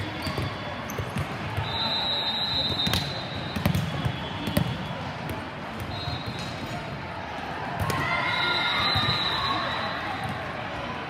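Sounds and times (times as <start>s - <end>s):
volleyballs bouncing on gym floor: 0.0s - 1.7s, 2.7s - 6.5s.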